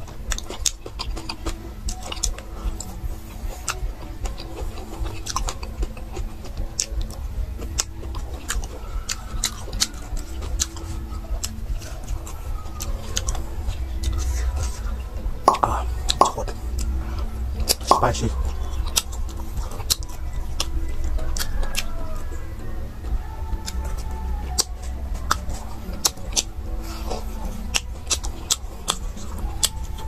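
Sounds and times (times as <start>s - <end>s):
wet mouth clicks and smacks: 0.0s - 17.0s, 17.6s - 21.9s
low hum: 0.0s - 30.0s
person chewing meat: 0.0s - 30.0s.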